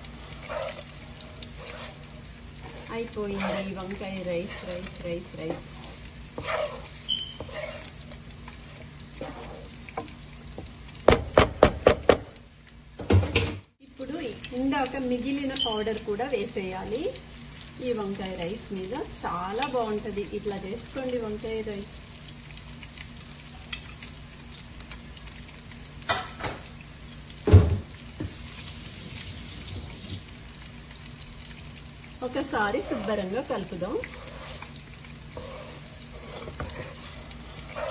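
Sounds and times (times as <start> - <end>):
wooden spatula scraping a pan: 0.0 - 10.7, 32.6 - 37.9
food sizzling in a pan: 0.0 - 13.1, 13.7 - 37.9
spatula knocking on pan: 10.0 - 12.4.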